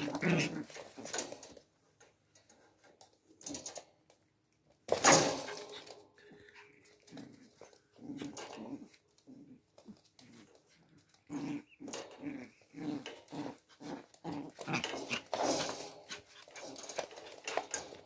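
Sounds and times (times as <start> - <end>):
puppies play-growling: 0.0 - 1.7, 5.4 - 18.0.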